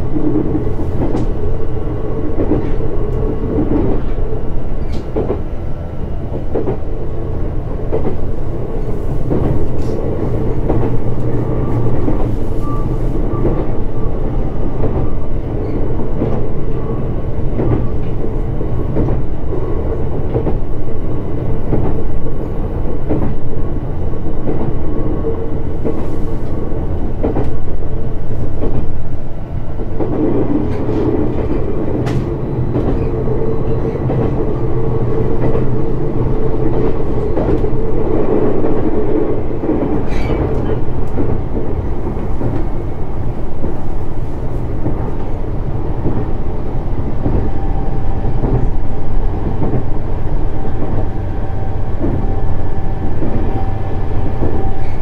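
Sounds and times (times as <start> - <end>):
train wheels rumbling on rail: 0.0 - 55.0
rail-joint clicks: 0.2 - 1.6, 2.2 - 5.6, 6.3 - 6.9, 7.8 - 23.5, 24.4 - 29.1, 29.7 - 55.0
faint train whine: 24.8 - 55.0.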